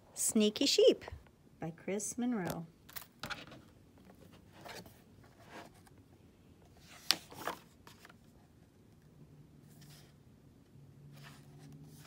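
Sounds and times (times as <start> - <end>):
paper pages rustling: 6.7 - 8.4.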